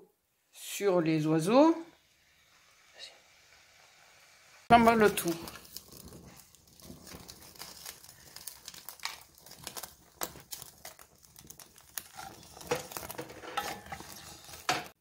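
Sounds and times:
flambe crackling and sizzling: 1.2 - 15.0.

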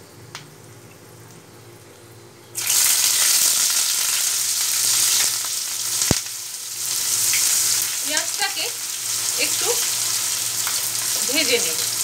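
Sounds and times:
onion sizzling in hot oil: 2.6 - 12.0.

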